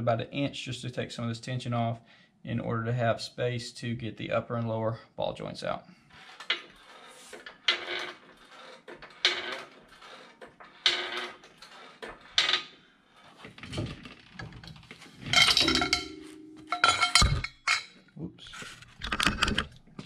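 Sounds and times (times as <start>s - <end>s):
floor jack metallic clanks: 15.2s - 17.9s
steel bar clanking and ringing: 15.3s - 18.0s.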